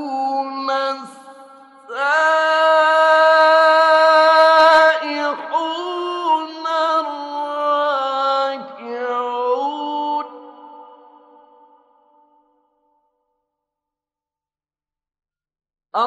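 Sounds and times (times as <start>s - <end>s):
man reciting melodically: 0.0s - 11.0s.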